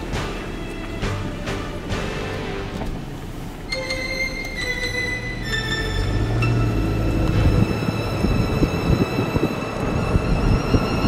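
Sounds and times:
background music held note: 3.6s - 11.0s
wind buffeting microphone: 6.0s - 11.0s.

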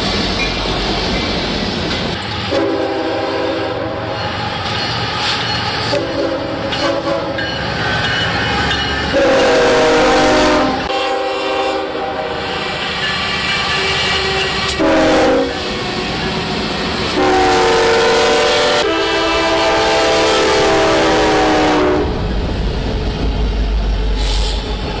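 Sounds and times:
trains passing: 0.0s - 25.0s
locomotive air horn blasts: 2.5s - 4.2s, 5.9s - 7.4s, 9.1s - 12.6s, 14.2s - 15.8s, 17.2s - 22.2s.

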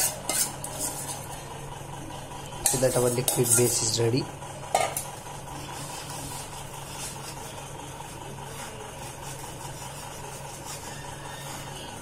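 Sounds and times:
ladle rubbing a mesh strainer: 0.0s - 1.4s, 2.7s - 4.0s, 5.6s - 12.0s
steady low hum: 0.0s - 12.0s.

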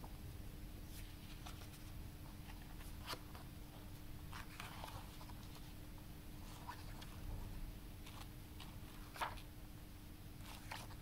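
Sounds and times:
paper rustling: 0.9s - 5.8s, 6.4s - 9.5s, 10.4s - 11.0s.

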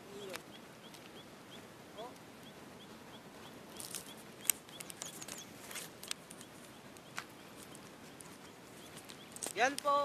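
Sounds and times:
faint bird chirping: 0.0s - 10.0s
steady hiss: 0.0s - 10.0s
sharp clicks: 3.8s - 8.3s.

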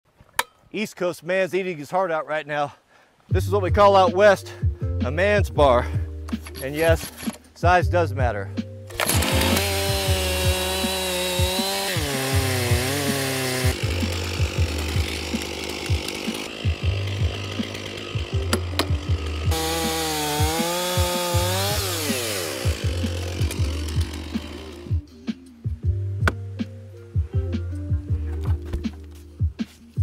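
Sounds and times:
background music with beat: 3.3s - 7.0s, 7.6s - 30.0s
chainsaw cutting wood: 8.9s - 25.0s.

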